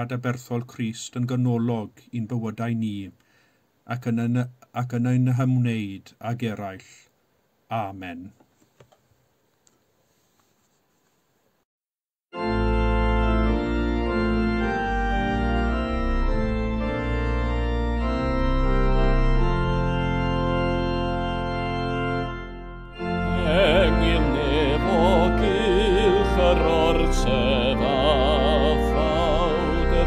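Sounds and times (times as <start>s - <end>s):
organ playing hymn chords: 12.3s - 30.0s
person singing with vibrato: 23.0s - 30.0s.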